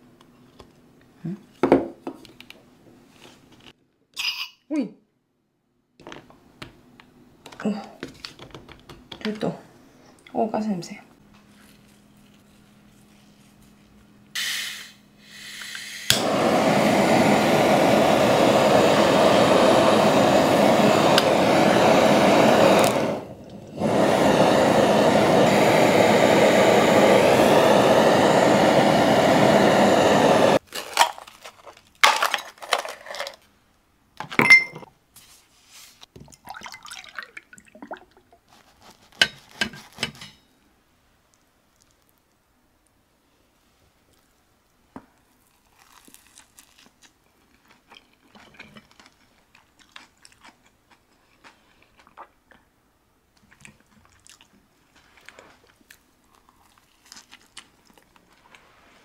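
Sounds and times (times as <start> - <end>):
kitchen torch hissing: 14.4 - 30.6.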